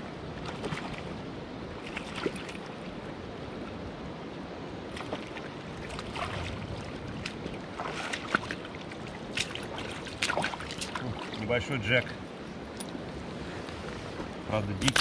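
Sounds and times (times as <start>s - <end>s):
fish splashing in water: 4.9s - 11.4s.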